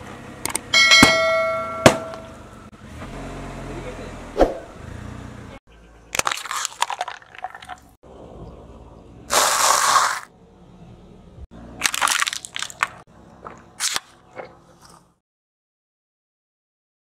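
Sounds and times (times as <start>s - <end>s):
tyres crushing plastic: 6.1s - 7.9s, 11.8s - 13.0s.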